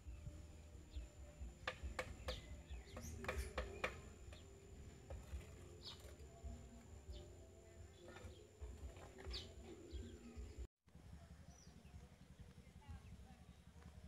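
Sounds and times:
birds chirping: 0:00.0 - 0:10.7.

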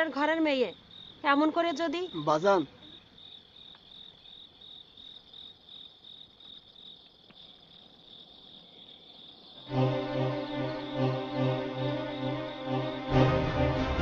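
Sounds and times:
crickets chirping: 0:00.0 - 0:14.0
music with sustained chords: 0:09.7 - 0:14.0.

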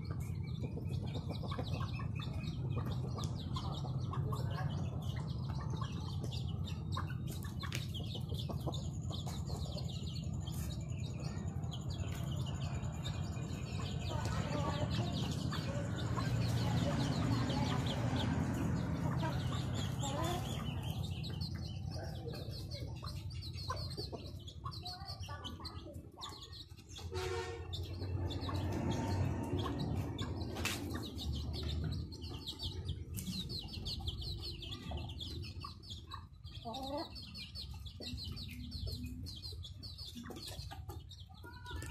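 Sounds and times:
chickens clucking: 0:00.0 - 0:41.9
chicks peeping: 0:00.0 - 0:41.9.

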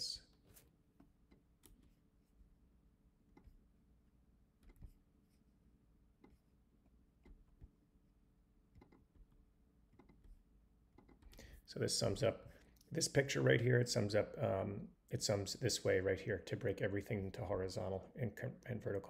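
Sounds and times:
low steady hum: 0:00.0 - 0:19.0
mouse and keyboard clicks: 0:08.7 - 0:10.3.

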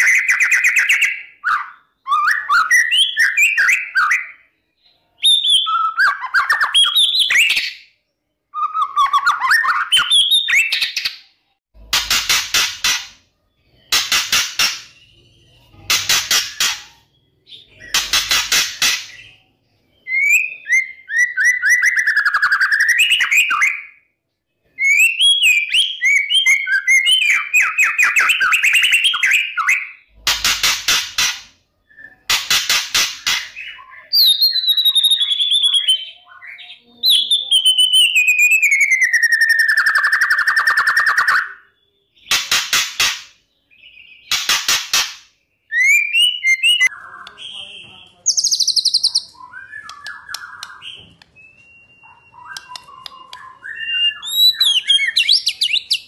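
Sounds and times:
bird whistled phrases: 0:00.0 - 0:07.8, 0:08.5 - 0:11.1, 0:20.0 - 0:24.1, 0:24.8 - 0:30.1, 0:33.5 - 0:42.4, 0:45.6 - 0:56.0.

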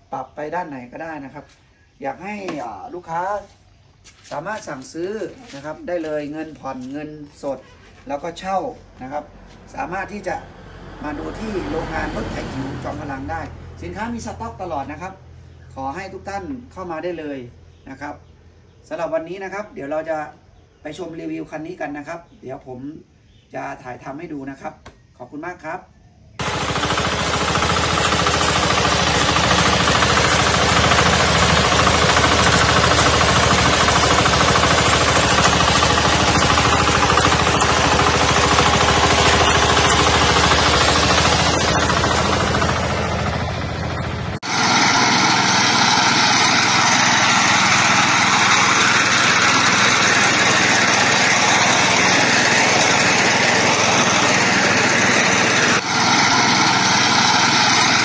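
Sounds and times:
small engine cutting grass: 0:04.1 - 0:08.3, 0:09.4 - 0:15.0, 0:26.4 - 0:58.0
reaper engine cutting rice: 0:04.1 - 0:15.0, 0:26.4 - 0:58.0.

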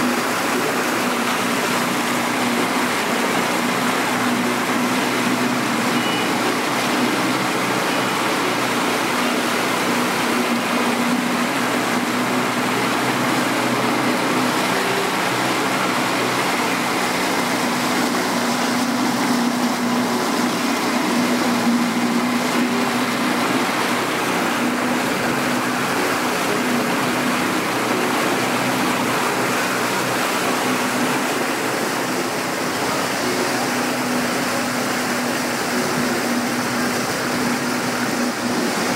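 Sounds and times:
boat engine humming: 0:00.0 - 0:38.9
water rushing: 0:00.0 - 0:38.9.

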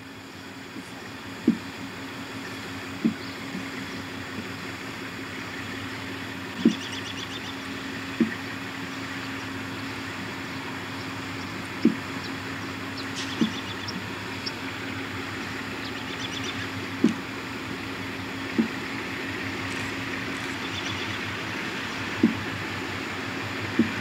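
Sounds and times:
diesel locomotive engine drone: 0:00.0 - 0:24.0
short dull thumps: 0:01.4 - 0:01.7, 0:03.0 - 0:03.7, 0:13.2 - 0:14.1, 0:16.9 - 0:17.3, 0:18.5 - 0:18.9, 0:22.1 - 0:22.5, 0:23.8 - 0:24.0
faint bird chirps: 0:06.6 - 0:07.7, 0:11.0 - 0:15.0, 0:15.8 - 0:16.8.

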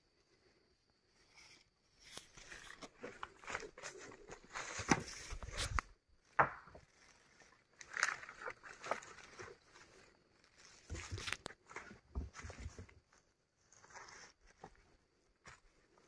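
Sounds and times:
footsteps crunching through leaves: 0:02.4 - 0:05.9, 0:06.9 - 0:12.7.

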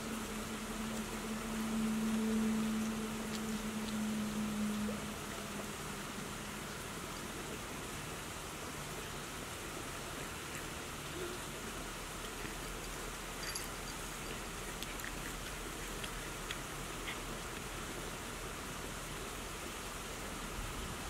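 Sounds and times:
cats chewing stems: 0:00.0 - 0:20.8
outdoor background hiss: 0:00.0 - 0:21.0.

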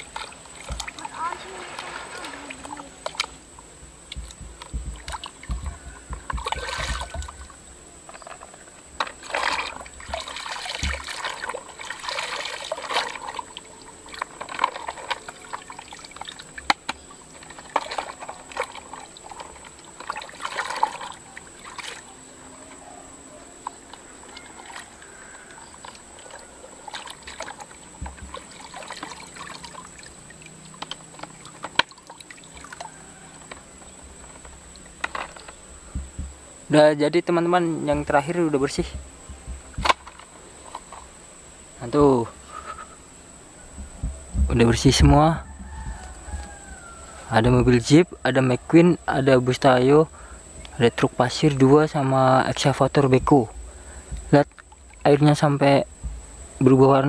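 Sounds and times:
hands scrubbing toy in water: 0:00.0 - 0:03.4, 0:09.0 - 0:16.8, 0:25.8 - 0:30.2
water trickling: 0:00.0 - 0:22.2, 0:23.6 - 0:36.9, 0:50.2 - 0:56.0.

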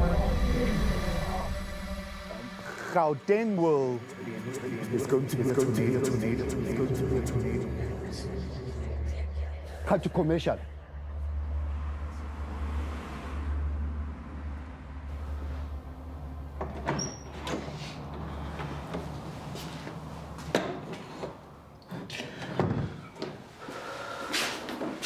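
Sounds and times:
low steady rumble: 0:00.0 - 0:02.9, 0:04.8 - 0:16.6.

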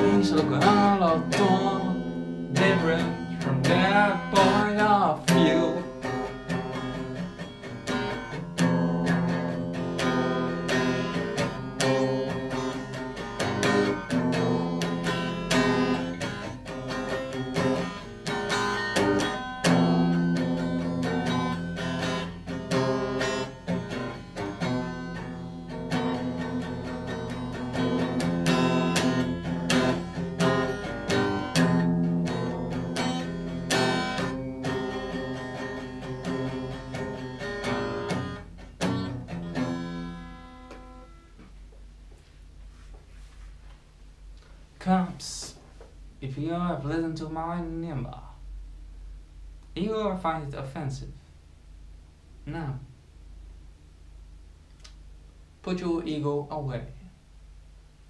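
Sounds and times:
solo guitar: 0:00.0 - 0:42.3.

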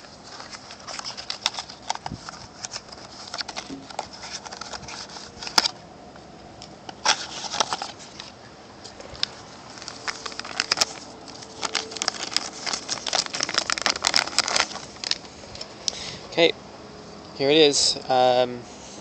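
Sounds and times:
cardboard and plastic rustling: 0:00.0 - 0:05.8, 0:06.9 - 0:16.0.

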